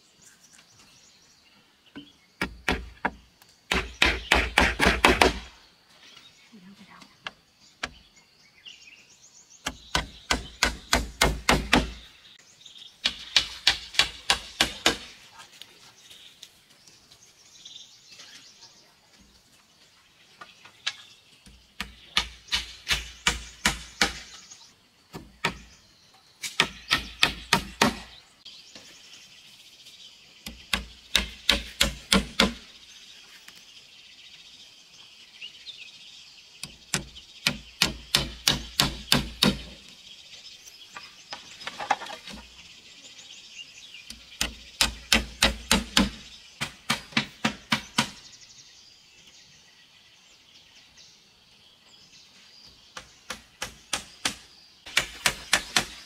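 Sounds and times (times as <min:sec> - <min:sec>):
hammer driving nails into wood: 0:02.4 - 0:05.5, 0:09.7 - 0:12.0.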